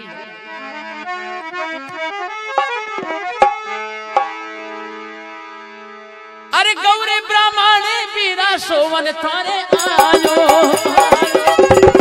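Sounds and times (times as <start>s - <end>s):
harmonium melody: 0.0s - 12.0s
hand drum strokes: 2.6s - 3.6s, 9.8s - 12.0s.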